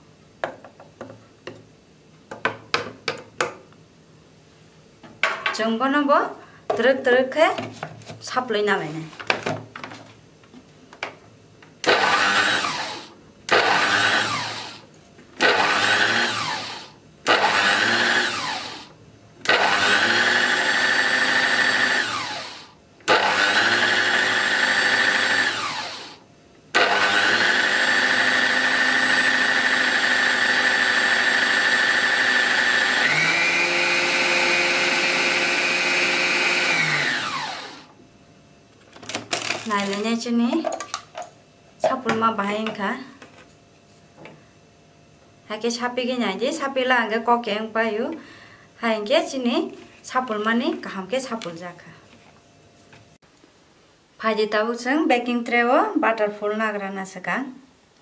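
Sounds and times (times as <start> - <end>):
food processor whirring: 11.8 - 26.2, 26.8 - 37.9.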